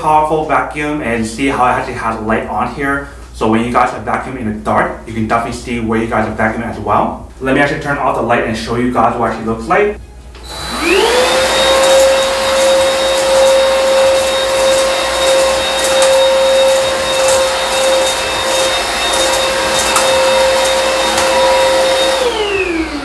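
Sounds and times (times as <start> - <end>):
vacuum cleaner motor whining: 10.4 - 23.0.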